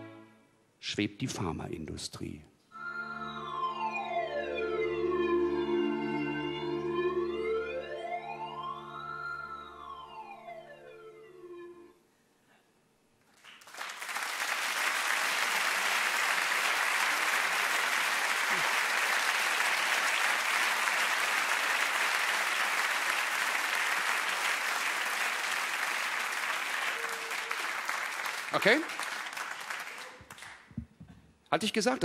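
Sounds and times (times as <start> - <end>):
audience applauding: 13.3 - 30.8.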